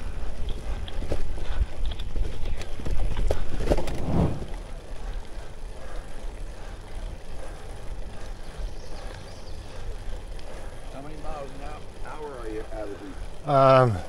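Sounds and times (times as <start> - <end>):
wind rumbling on microphone: 0.0 - 4.8
tyres rushing on pavement: 0.0 - 14.0
bike clattering over dirt trail: 0.3 - 14.0.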